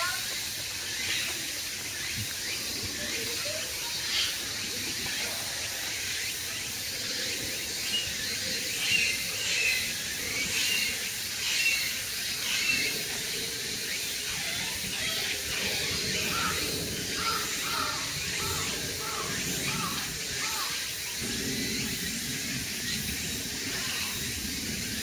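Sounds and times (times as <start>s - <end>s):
outdoor background hiss: 0.0s - 25.0s.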